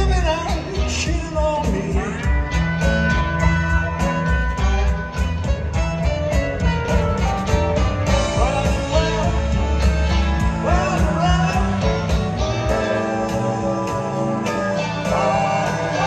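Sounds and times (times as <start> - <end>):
man singing: 0.0 - 4.8, 8.1 - 16.0
rock band playing: 0.0 - 16.0.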